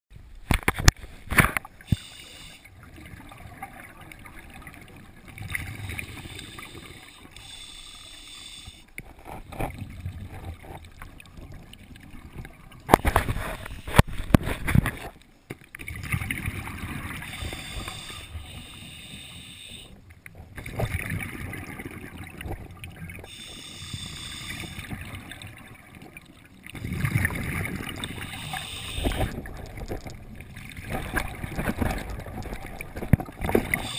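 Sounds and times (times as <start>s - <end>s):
scuba regulator hiss and bubbling: 1.8s - 2.7s, 5.6s - 8.9s, 13.0s - 14.3s, 17.2s - 20.0s, 23.2s - 25.0s, 27.7s - 29.5s, 33.5s - 33.9s.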